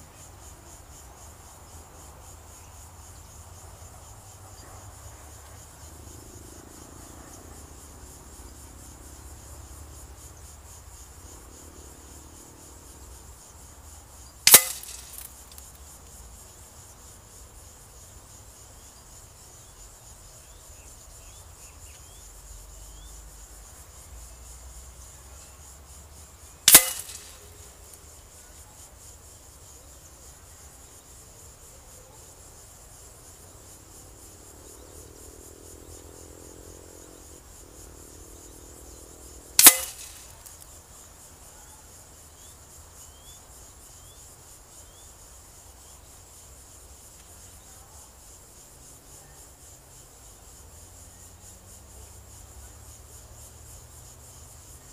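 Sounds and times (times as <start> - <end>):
insects chirring: 0.0 - 54.9
pellets cracking into target: 14.5 - 15.7, 26.7 - 27.6, 39.6 - 40.6.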